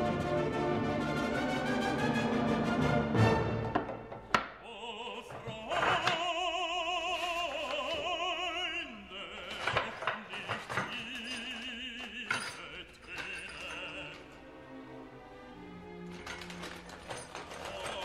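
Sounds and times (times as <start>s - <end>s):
wooden knocks: 3.6s - 4.6s, 5.2s - 6.3s
operatic singing with music: 4.4s - 18.0s.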